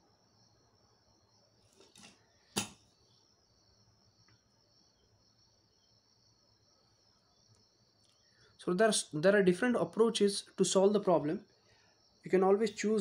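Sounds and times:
crickets trilling: 0.0 - 13.0
sharp plastic tap: 2.0 - 2.8.

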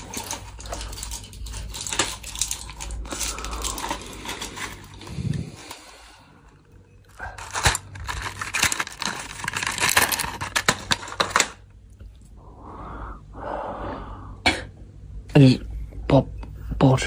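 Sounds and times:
medicine packaging crinkling and tearing: 0.0 - 12.2.

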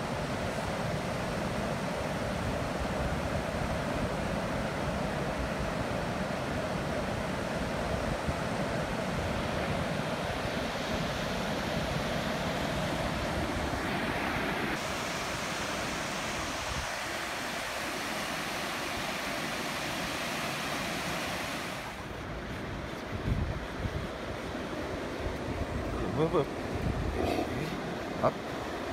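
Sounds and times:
ocean surf breaking on beach: 0.0 - 28.9
wind rumbling on microphone: 21.9 - 28.2.

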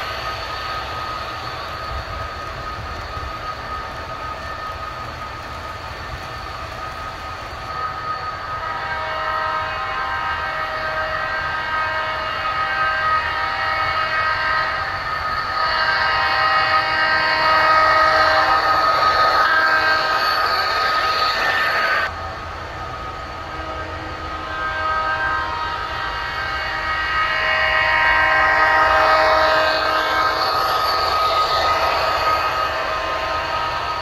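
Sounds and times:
train rumbling: 0.0 - 34.0
locomotive horn blasts: 8.4 - 20.5, 23.4 - 31.2.

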